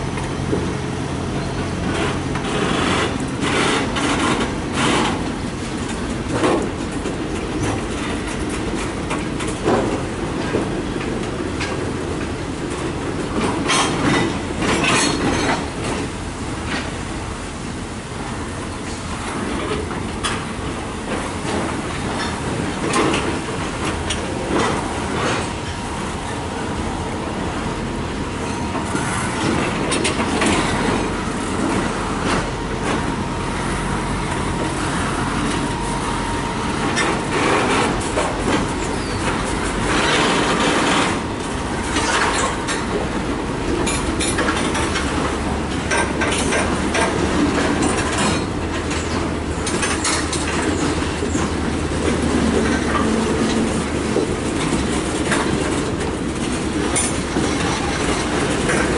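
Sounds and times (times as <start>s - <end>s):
train wheels clacking over rail joints: 0.0s - 17.2s, 18.5s - 58.9s
freight cars rumbling: 0.0s - 58.9s
wheel squeal: 38.8s - 41.0s.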